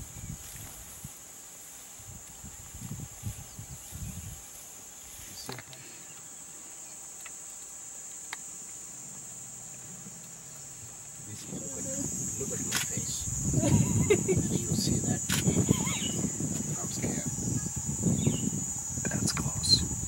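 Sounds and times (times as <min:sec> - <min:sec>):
high-pitched insect chorus: 0:00.0 - 0:20.0
low rumbles: 0:09.7 - 0:20.0.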